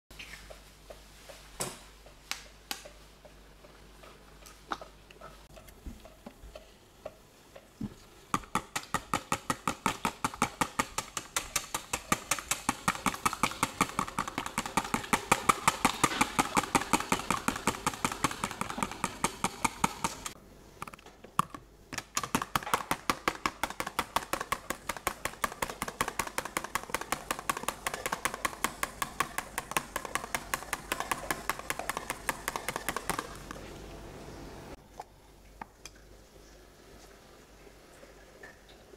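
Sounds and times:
hand whisk beating in bowl: 0:08.3 - 0:20.4, 0:22.0 - 0:33.6.

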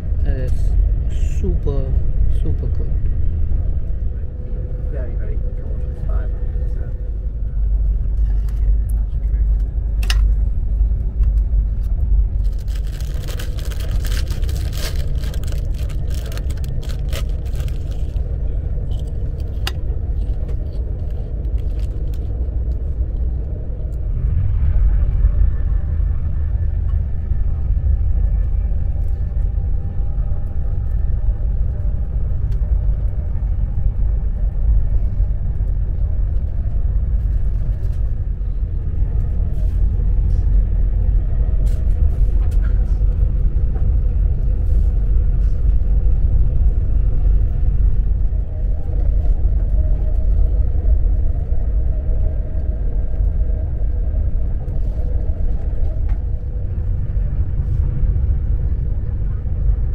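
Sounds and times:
faint steady hum: 0:00.0 - 0:59.9
train rumbling inside carriage: 0:00.0 - 0:59.9.

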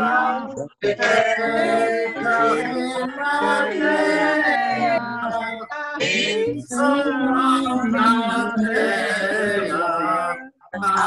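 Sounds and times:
men and women singing together: 0:00.0 - 0:11.0.

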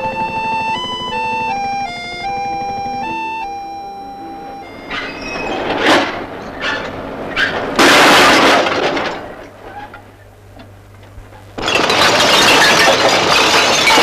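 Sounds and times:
broken glass bottles crashing: 0:07.8 - 0:09.3, 0:11.6 - 0:14.0.

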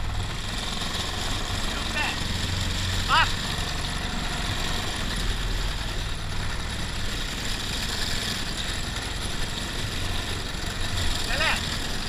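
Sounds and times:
kart engine idling: 0:00.0 - 0:12.0.

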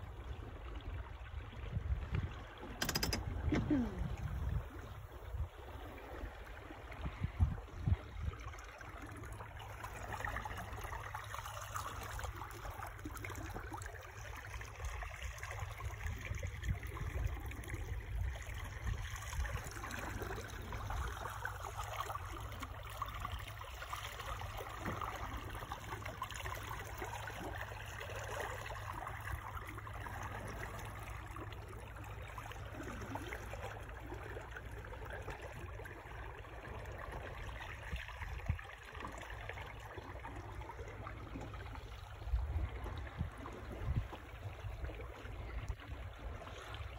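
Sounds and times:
water rushing along boat hull: 0:00.0 - 0:46.9
wind on microphone: 0:01.4 - 0:05.9, 0:06.8 - 0:08.5, 0:42.2 - 0:46.5.

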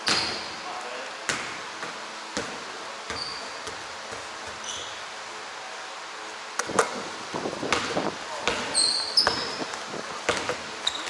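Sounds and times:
sneaker squeaks: 0:00.0 - 0:00.6, 0:03.1 - 0:03.8, 0:04.4 - 0:05.1, 0:08.5 - 0:11.0
basketball bouncing: 0:01.3 - 0:04.8, 0:07.6 - 0:11.0.

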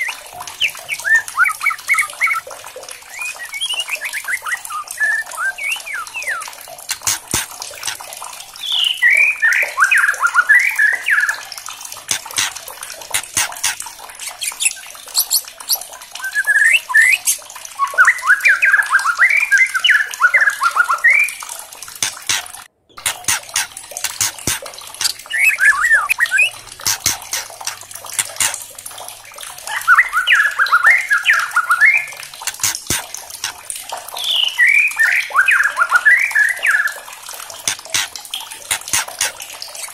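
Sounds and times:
bird singing varied phrases: 0:00.0 - 0:08.0, 0:08.6 - 0:11.5, 0:13.1 - 0:21.4, 0:22.0 - 0:28.7, 0:29.6 - 0:33.5, 0:34.1 - 0:37.1
sharp bird clicks: 0:05.3 - 0:08.0, 0:12.0 - 0:15.9, 0:22.0 - 0:28.7, 0:32.4 - 0:33.6, 0:37.6 - 0:39.9.

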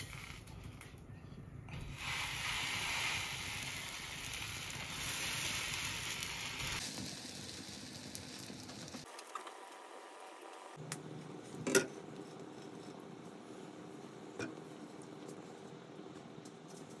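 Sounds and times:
butter sizzling on griddle: 0:01.9 - 0:10.4.

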